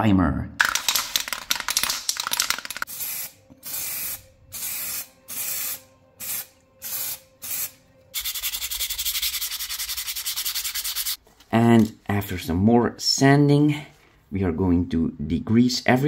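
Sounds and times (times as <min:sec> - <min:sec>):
aerosol spray can hissing: 0:02.7 - 0:11.2
sanding sponge rasping: 0:08.2 - 0:11.2.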